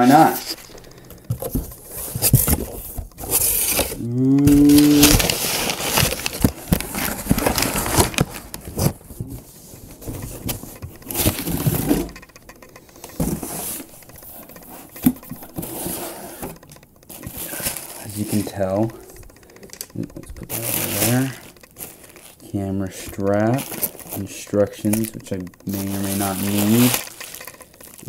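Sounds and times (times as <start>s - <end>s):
cardboard box tearing: 1.3s - 9.0s, 20.5s - 22.4s
person low vocal sound: 4.0s - 5.3s.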